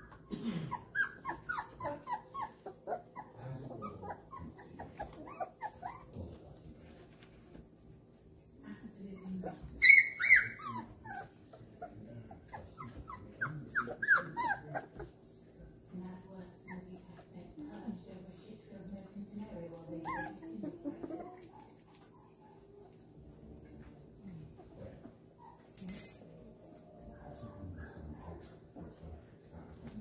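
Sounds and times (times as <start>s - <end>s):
puppies crying: 0.0s - 6.2s, 9.2s - 15.1s, 19.9s - 23.0s.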